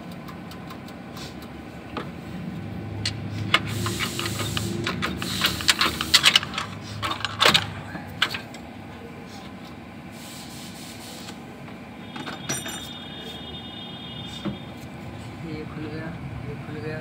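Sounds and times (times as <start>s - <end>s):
metal engine parts clinking: 3.0s - 8.6s, 12.1s - 13.1s.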